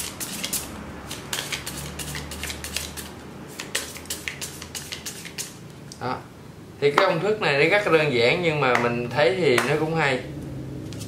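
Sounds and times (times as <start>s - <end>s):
playing cards shuffled by hand: 1.3s - 5.5s.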